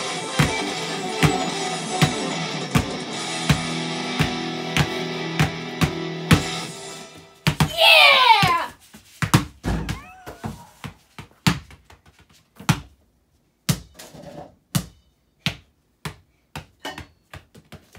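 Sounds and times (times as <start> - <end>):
basketballs bouncing on a mat: 1.2 - 6.6, 7.4 - 7.8, 9.2 - 13.0, 13.7 - 14.0, 14.7 - 17.9.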